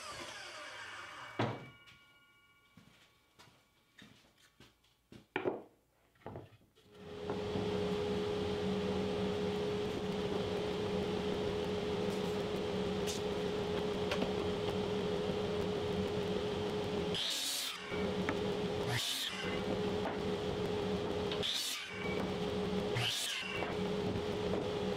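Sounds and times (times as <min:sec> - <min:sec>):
dust collector humming: 0:06.9 - 0:24.9.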